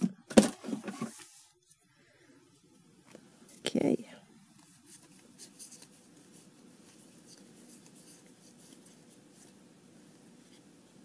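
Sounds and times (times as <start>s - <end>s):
cards rubbing and scraping: 4.6s - 9.6s.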